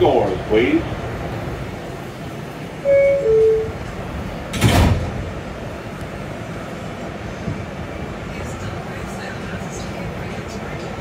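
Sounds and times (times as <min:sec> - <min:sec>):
two-tone descending door chime: 0:02.9 - 0:03.8
sliding doors shutting thump: 0:04.5 - 0:05.3.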